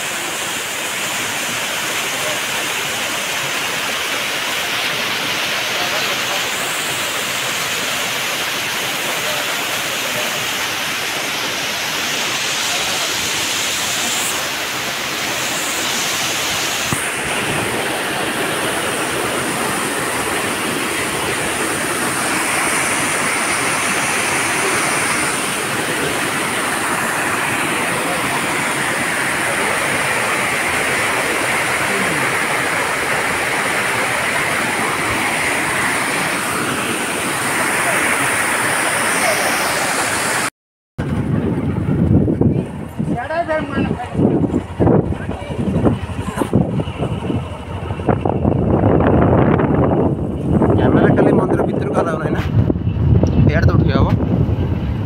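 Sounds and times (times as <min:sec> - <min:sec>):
waterfall rushing: 0:00.0 - 0:42.0
thin high steady tone: 0:10.9 - 0:40.5.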